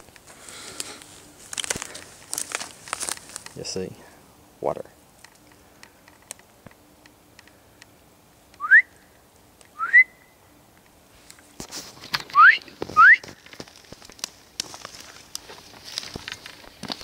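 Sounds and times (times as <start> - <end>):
footsteps crunching on dry needles: 0.0 - 4.2, 11.1 - 17.0
person whistling rising notes: 8.6 - 8.9, 9.8 - 10.3, 12.4 - 13.2.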